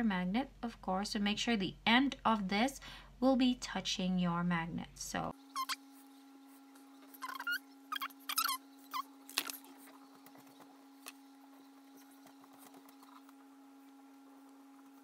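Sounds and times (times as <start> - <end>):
steady low hum: 0.0 - 15.0
rustles of handling: 9.2 - 15.0.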